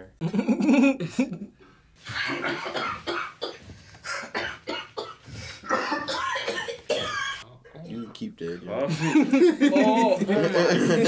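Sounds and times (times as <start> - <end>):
man coughing: 2.3 - 7.4.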